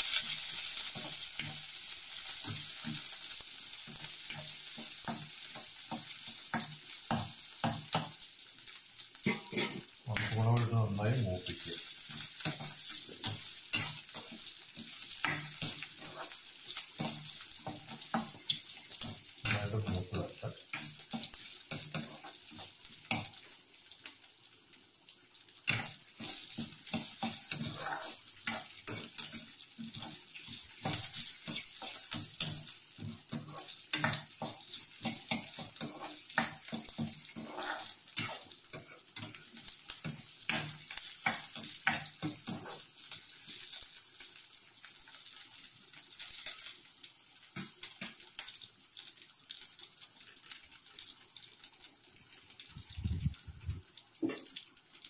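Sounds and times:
spices sizzling in hot oil: 0:00.0 - 0:55.0
spoon scraping metal pan: 0:09.3 - 0:09.9, 0:15.2 - 0:16.4, 0:25.7 - 0:32.6, 0:33.2 - 0:39.4, 0:41.3 - 0:42.9.

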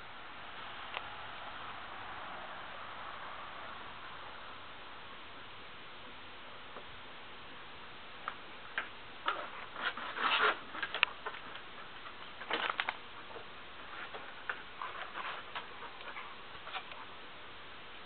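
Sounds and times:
dogs scuffling on wooden deck: 0:08.7 - 0:17.1.

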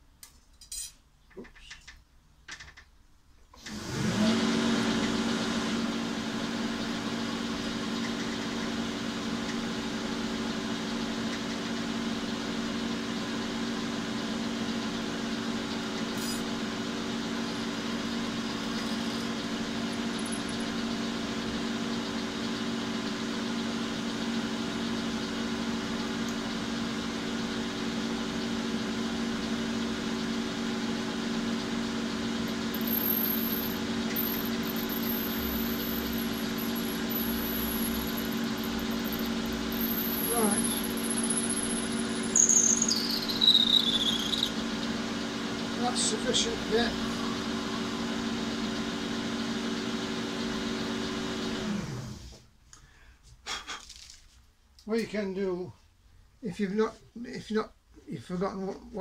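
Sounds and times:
lathe motor humming: 0:03.7 - 0:52.3
drill boring into metal bar: 0:15.9 - 0:20.9, 0:32.4 - 0:45.0.

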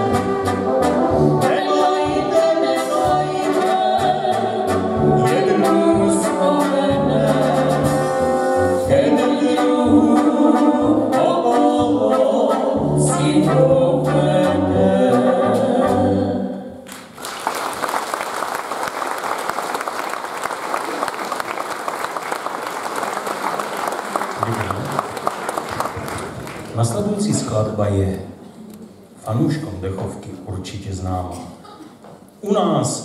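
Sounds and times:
brass band playing: 0:00.0 - 0:16.5
voices singing together: 0:01.3 - 0:16.8
audience applause: 0:16.9 - 0:27.1.

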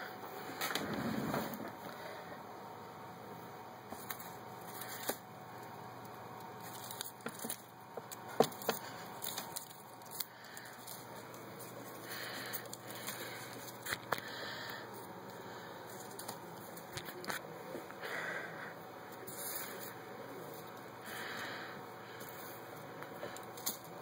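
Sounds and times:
shredded paper rustling: 0:06.6 - 0:15.1, 0:15.7 - 0:17.4, 0:19.2 - 0:22.6.

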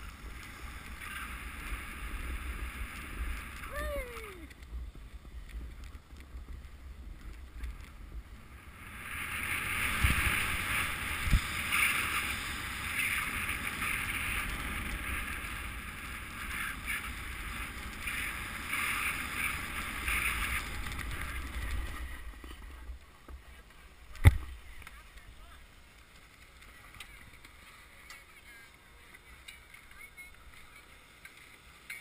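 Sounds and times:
wind rumble on microphone: 0:00.0 - 0:25.5
snowboard scraping over snow: 0:00.0 - 0:28.0.

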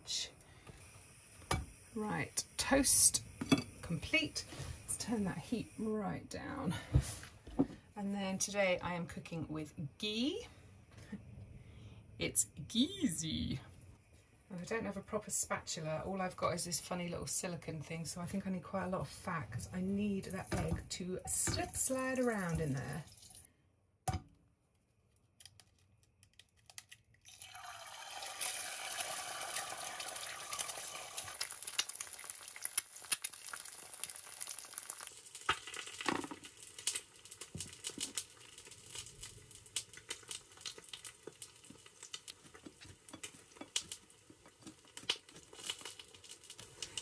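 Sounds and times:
fat sizzling in a frying pan: 0:00.1 - 0:06.3, 0:27.3 - 0:47.0.

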